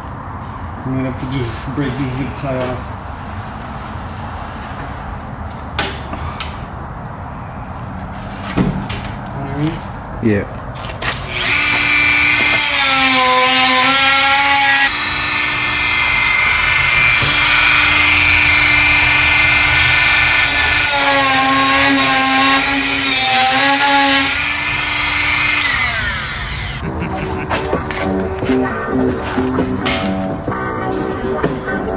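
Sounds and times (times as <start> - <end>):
rotary tool cutting plastic: 11.1 - 26.8.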